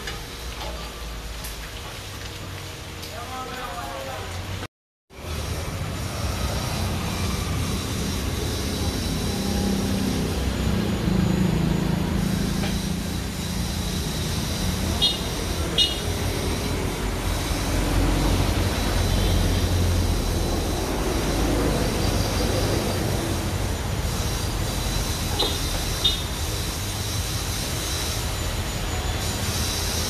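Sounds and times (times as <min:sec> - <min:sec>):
road noise: 0:00.0 - 0:30.0
vehicle engine rumble: 0:05.2 - 0:29.7
short high squeaks: 0:14.6 - 0:16.2, 0:24.8 - 0:26.5.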